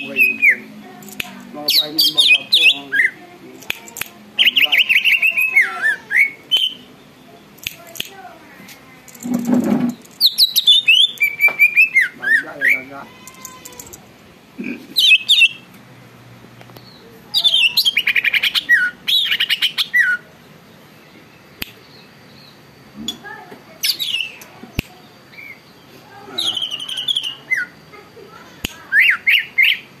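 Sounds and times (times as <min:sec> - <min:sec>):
bird singing whistles and trills: 0:04.4 - 0:06.9, 0:10.2 - 0:12.9, 0:15.0 - 0:15.6, 0:17.4 - 0:20.3, 0:23.8 - 0:24.4, 0:28.9 - 0:29.9.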